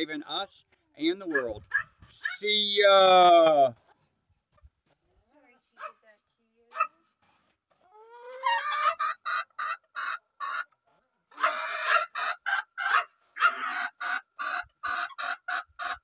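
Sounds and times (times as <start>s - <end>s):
chicken clucking and squawking: 7.8s - 16.0s.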